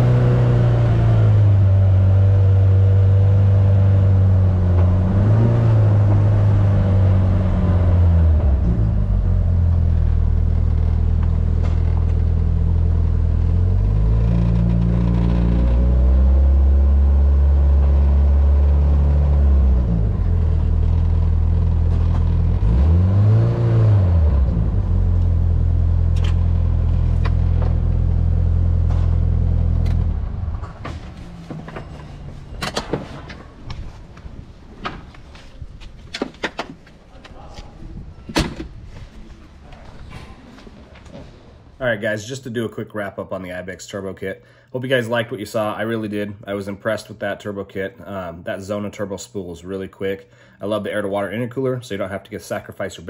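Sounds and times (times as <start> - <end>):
off-road vehicle engine revving: 0.0 - 31.6.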